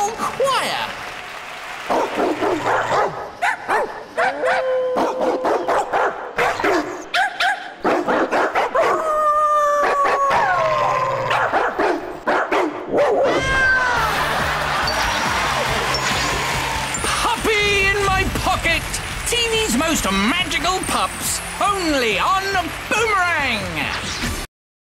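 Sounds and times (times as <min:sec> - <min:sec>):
cartoon puppies howling: 0:04.2 - 0:05.8, 0:08.8 - 0:11.4, 0:13.1 - 0:14.3.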